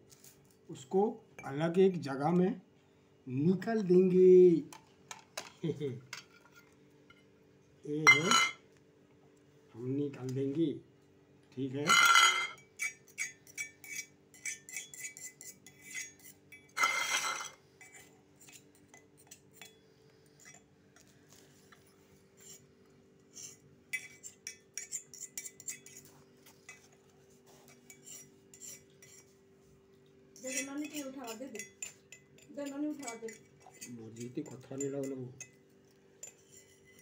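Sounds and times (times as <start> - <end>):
faint steady hum: 0.0 - 37.0
knife scraping and clinking on metal: 8.1 - 8.6, 11.9 - 19.8, 20.4 - 20.7, 23.3 - 29.4, 30.4 - 35.6, 36.2 - 37.0.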